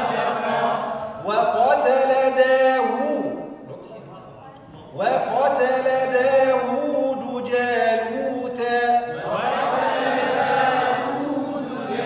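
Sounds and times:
man reciting in drawn-out chant: 1.1 - 4.0, 4.9 - 9.4.

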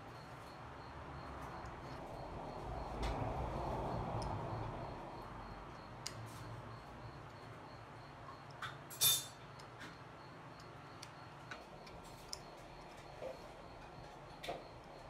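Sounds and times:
test probes and tools clicking: 3.9 - 4.7, 5.7 - 6.5, 7.3 - 15.0.

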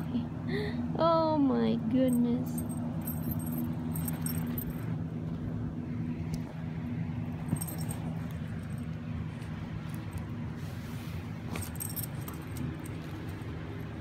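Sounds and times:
steady low hum: 0.0 - 14.0
dog collar tag jingling: 2.1 - 4.9, 7.4 - 10.3, 11.5 - 14.0.

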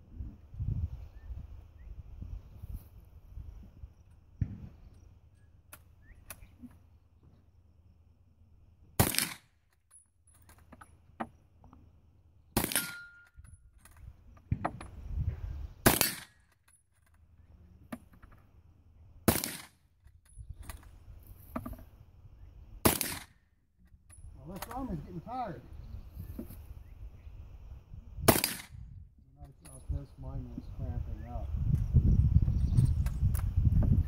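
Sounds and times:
rifle shots: 9.0 - 9.6, 12.6 - 13.2, 15.8 - 16.4, 19.2 - 19.8, 22.8 - 23.4, 28.2 - 28.8.

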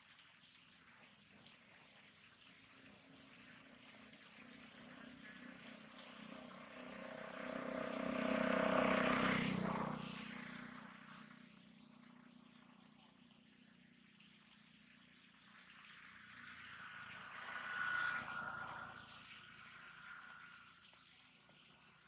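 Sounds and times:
propeller aircraft engine drone: 2.1 - 22.0
rain hissing: 3.0 - 11.6.

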